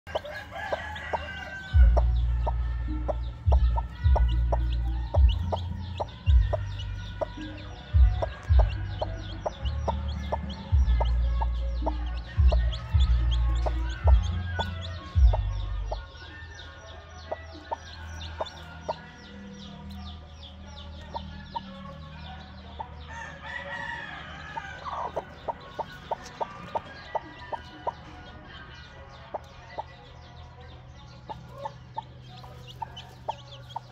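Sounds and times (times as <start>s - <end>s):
hen clucking: 0.0s - 16.4s, 21.0s - 30.0s, 31.2s - 33.9s
bass-heavy music: 0.0s - 33.9s
chicks peeping: 0.0s - 33.9s.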